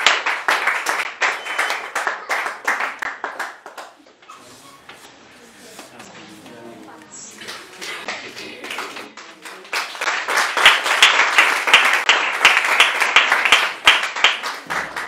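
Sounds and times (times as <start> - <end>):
people clapping: 0.0 - 4.2, 7.4 - 15.0.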